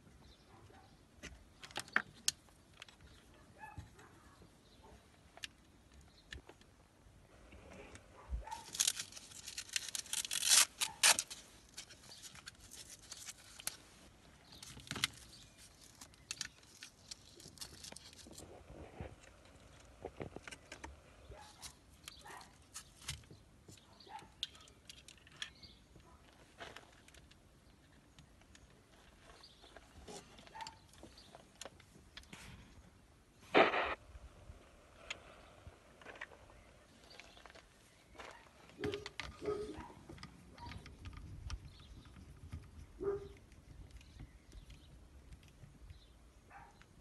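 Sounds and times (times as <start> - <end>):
rustling: 7.5 - 23.4
clicks and rattles of plastic parts: 14.5 - 18.4, 21.9 - 32.3, 38.7 - 42.8.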